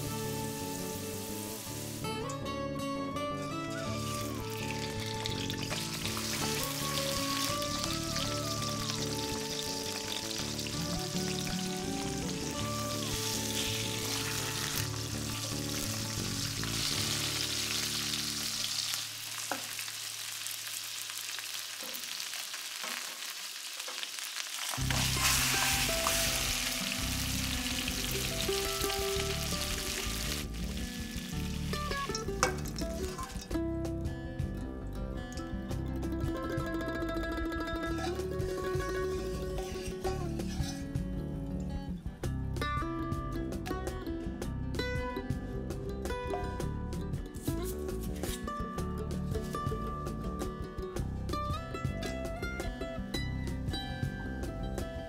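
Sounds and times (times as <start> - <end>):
background music: 0.0 - 19.4, 24.8 - 55.0
fish head frying in oil: 4.2 - 33.5.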